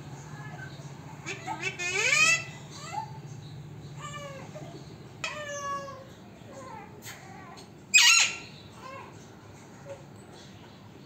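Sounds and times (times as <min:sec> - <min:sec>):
parakeet calling: 0:00.4 - 0:06.1, 0:07.9 - 0:08.7.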